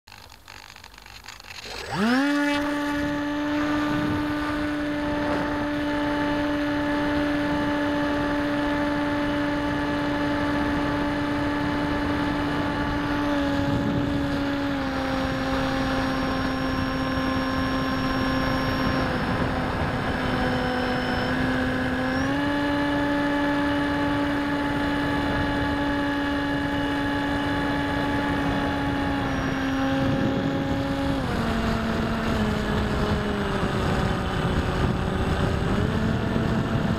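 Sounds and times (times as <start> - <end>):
electric motor buzzing drone: 0.1 - 36.9.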